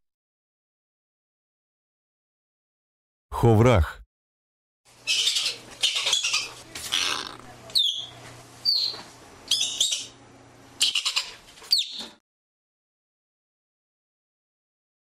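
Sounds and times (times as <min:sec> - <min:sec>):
ground squirrel chirping: 0:05.0 - 0:10.2, 0:10.8 - 0:12.0.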